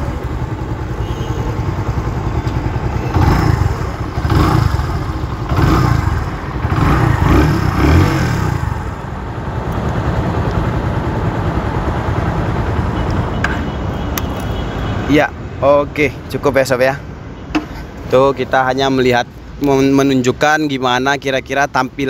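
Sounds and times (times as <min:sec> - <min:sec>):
motorcycle engine running: 0:00.0 - 0:13.4.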